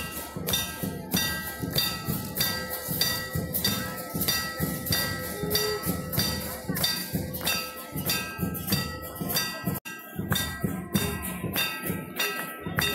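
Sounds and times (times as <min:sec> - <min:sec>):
drum beats: 0:00.0 - 0:12.9
temple bells struck: 0:00.0 - 0:12.9.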